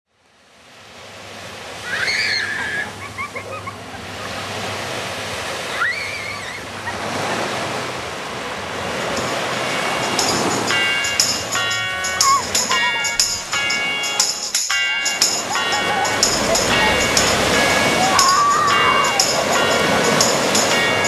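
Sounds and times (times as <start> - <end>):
waves washing on a beach: 0.2 - 21.0
music: 9.2 - 21.0
short high calls: 9.8 - 20.2.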